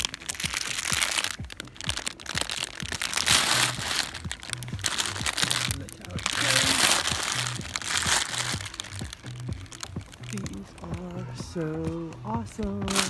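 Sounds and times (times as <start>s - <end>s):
background music with steady beat: 0.0s - 13.0s
plastic wrappers crinkling: 0.0s - 13.0s.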